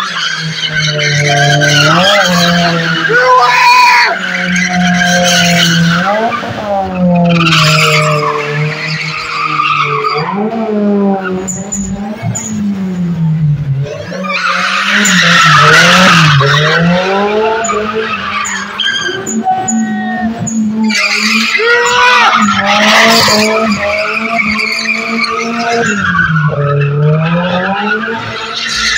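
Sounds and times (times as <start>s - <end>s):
car engine revving: 0.0s - 28.9s
tyres screeching: 13.9s - 28.9s.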